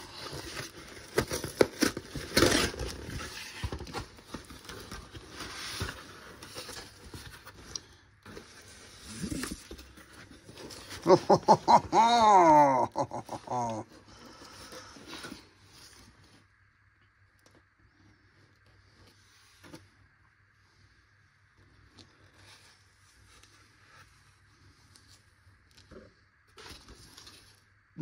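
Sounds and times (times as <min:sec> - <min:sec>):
cardboard and paper rustling: 0:00.0 - 0:12.0, 0:21.6 - 0:27.7.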